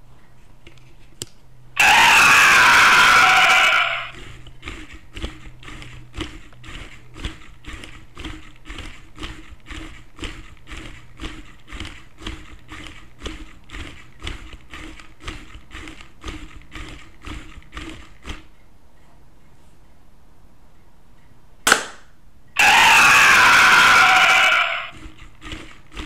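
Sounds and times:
small motor humming: 0:01.8 - 0:18.7, 0:22.6 - 0:26.0.

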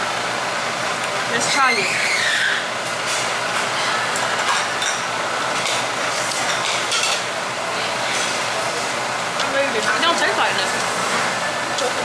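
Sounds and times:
restaurant ventilation rushing: 0:00.0 - 0:12.0
utensils and dishes clinking: 0:03.0 - 0:07.3.

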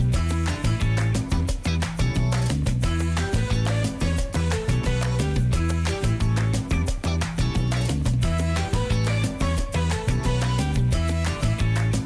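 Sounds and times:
music with strong bass line: 0:00.0 - 0:12.0.

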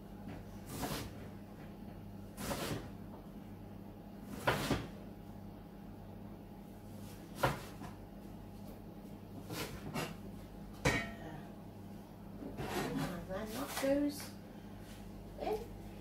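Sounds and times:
knife chopping on wooden board: 0:02.4 - 0:02.9, 0:07.4 - 0:07.9.

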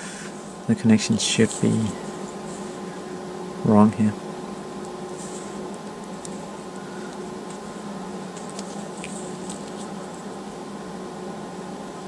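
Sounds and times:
steady background hum: 0:00.0 - 0:12.0
alligator clips clicking: 0:05.7 - 0:06.4.

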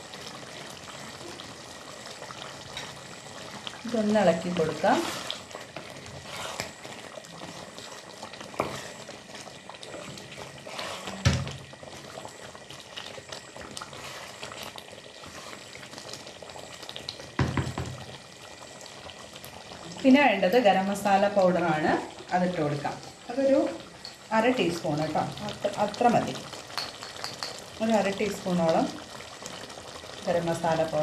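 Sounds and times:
curry simmering and bubbling: 0:00.0 - 0:31.0
spatula stirring: 0:04.7 - 0:07.6, 0:08.5 - 0:09.1, 0:09.8 - 0:11.3, 0:13.7 - 0:16.2, 0:26.7 - 0:27.7.

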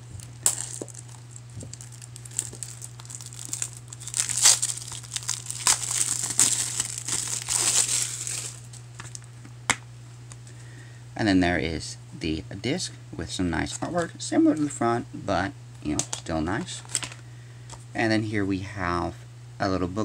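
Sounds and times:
plastic wrap crinkling: 0:00.0 - 0:09.3, 0:16.0 - 0:17.2.

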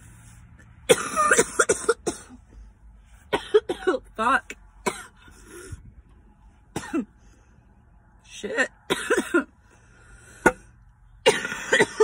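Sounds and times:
person coughing hard: 0:00.9 - 0:02.4, 0:03.3 - 0:04.1, 0:04.8 - 0:05.3, 0:06.7 - 0:07.1, 0:08.9 - 0:09.5, 0:11.2 - 0:12.0.

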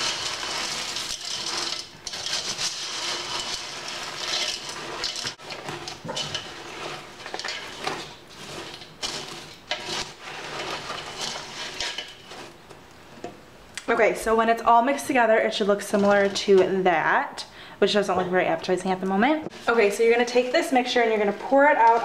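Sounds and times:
dry snack pieces rustling: 0:00.0 - 0:12.6
spoon scraping metal pot: 0:00.0 - 0:12.7, 0:15.6 - 0:16.8.

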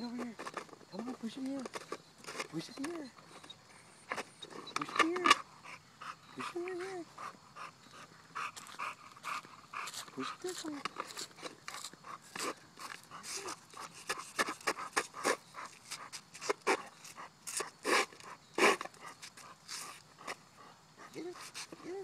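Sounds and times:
plastic frisbee scuffing on concrete: 0:01.6 - 0:03.4, 0:09.8 - 0:20.0
dog panting: 0:02.6 - 0:22.0.

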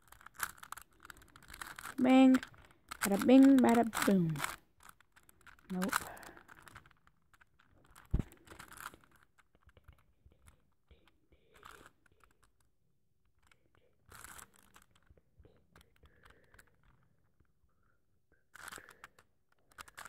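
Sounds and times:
plastic puzzle cube clicks: 0:00.1 - 0:10.6, 0:13.4 - 0:17.4, 0:18.5 - 0:20.0.

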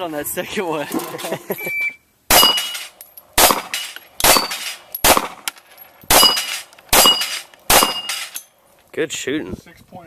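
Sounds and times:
steel plate ping: 0:02.3 - 0:05.2, 0:06.1 - 0:08.5
pistol shots: 0:02.3 - 0:08.4.

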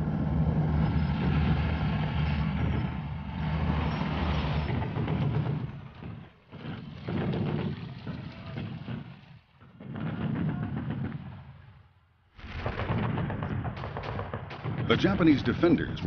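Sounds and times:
heavy engine droning: 0:00.0 - 0:08.7.

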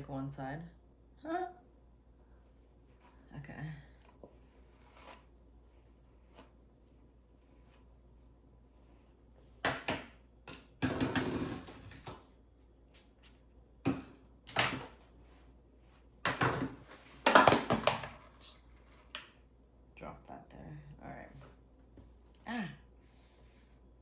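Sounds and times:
hairbrush rustling through hair: 0:04.0 - 0:09.5.

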